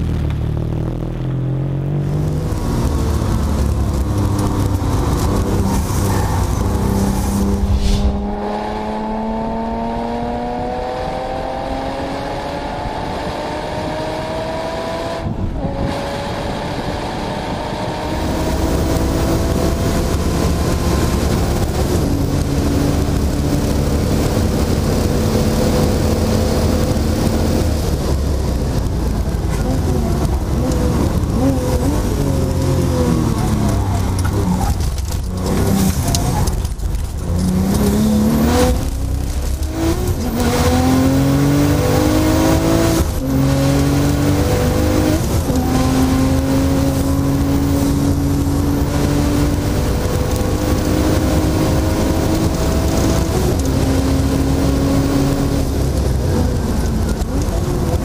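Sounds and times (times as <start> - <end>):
sports car engine revving: 1.3 - 58.0
gear upshifts: 3.6 - 10.0, 25.8 - 58.0.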